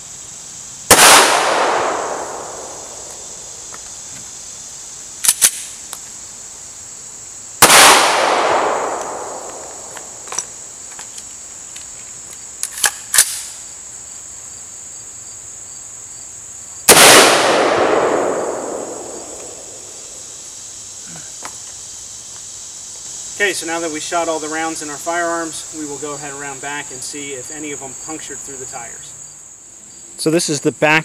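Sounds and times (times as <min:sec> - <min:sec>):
gunshots echoing: 0:00.9 - 0:03.3, 0:07.6 - 0:10.2, 0:16.9 - 0:20.2
gun handling clicks: 0:05.2 - 0:05.8, 0:11.2 - 0:13.5.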